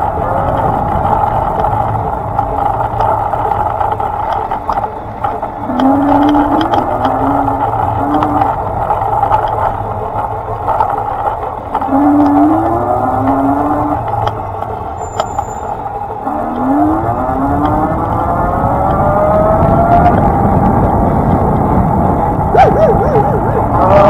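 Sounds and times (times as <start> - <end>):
vehicle running hum: 0.0 - 24.0
rising tones: 22.3 - 24.0.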